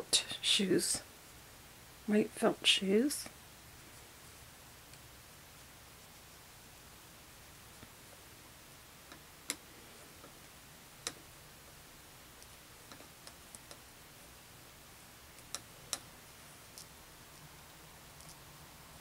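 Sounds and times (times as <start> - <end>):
faint steady hiss: 0.0 - 19.0
small clicks and taps: 9.1 - 9.6, 12.4 - 13.9, 15.4 - 16.1.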